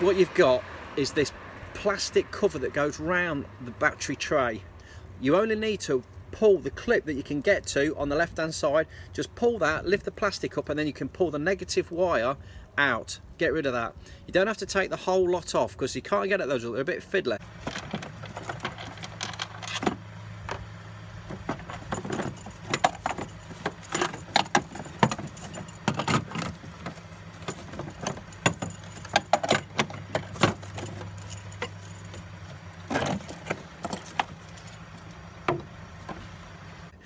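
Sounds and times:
low steady hum: 0:17.4 - 0:37.0.

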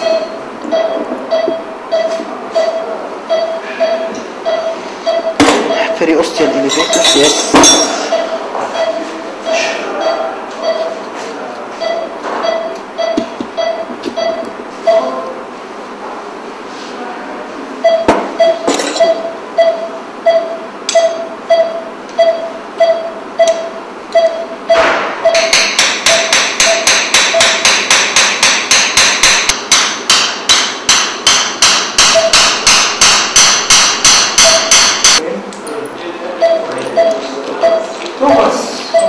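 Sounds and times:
patient monitor beeps: 0:00.0 - 0:11.1, 0:11.7 - 0:15.3, 0:17.8 - 0:27.6, 0:32.1 - 0:32.4, 0:34.4 - 0:34.7, 0:36.3 - 0:39.0
sharp hammer-like knocks: 0:24.7 - 0:35.2.

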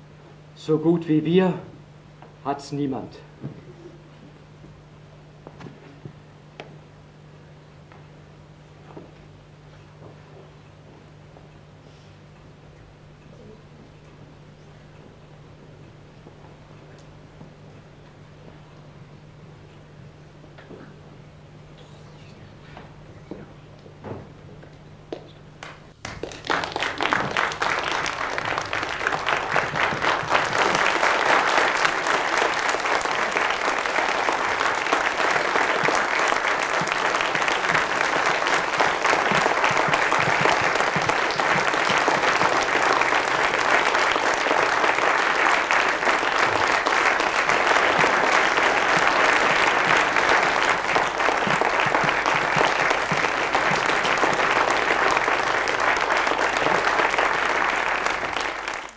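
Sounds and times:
audience applauding: 0:25.1 - 0:58.9.

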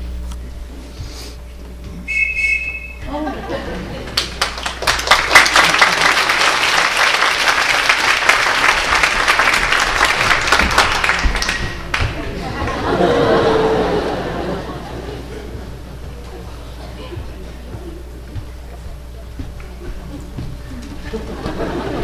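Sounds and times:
whistle blown: 0:02.1 - 0:03.1
applause: 0:04.0 - 0:12.2.

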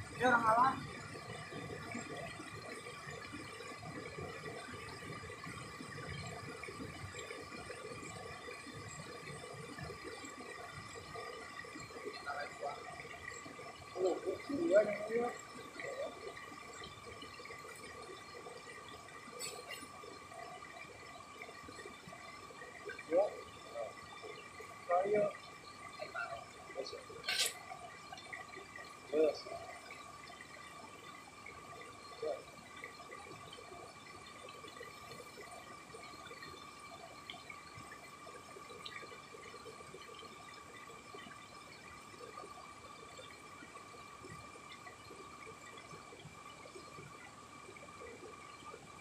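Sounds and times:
river water flowing over rocks: 0:00.0 - 0:49.0.

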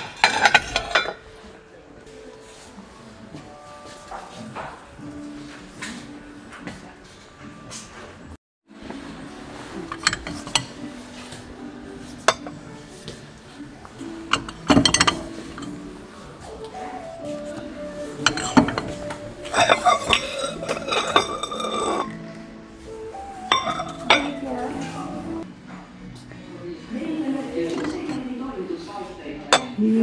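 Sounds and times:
ceramic plates clinking: 0:00.0 - 0:01.5, 0:09.7 - 0:22.3, 0:22.9 - 0:25.4, 0:27.6 - 0:28.4, 0:29.5 - 0:30.0.

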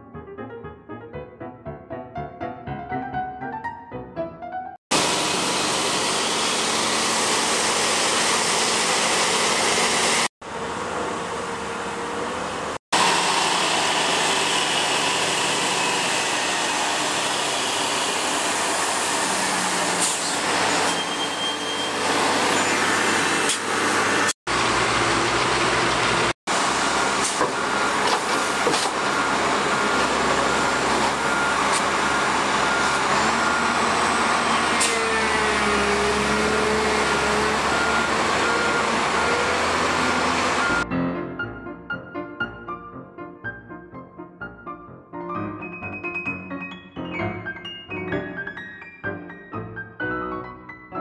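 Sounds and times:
heavy diesel machinery running: 0:04.9 - 0:40.8
backup alarm beeping: 0:29.1 - 0:33.8.

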